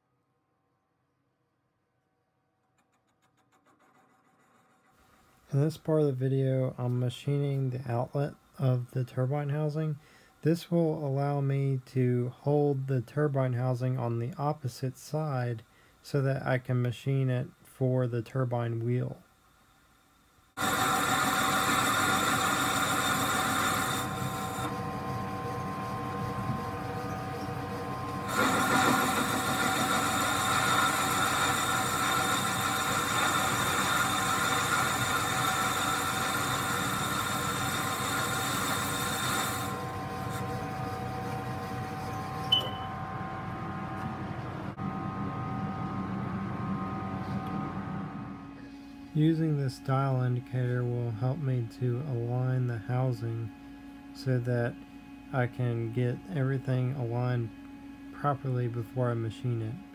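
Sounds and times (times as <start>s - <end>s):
hissing metal cutting: 20.6s - 42.5s
lathe machine whine: 20.6s - 49.0s.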